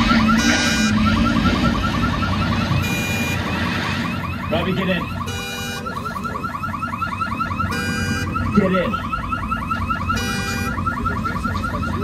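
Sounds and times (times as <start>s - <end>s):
horn-like alarm blast: 0.0s - 5.8s
car alarm warbling chirp: 0.0s - 12.0s.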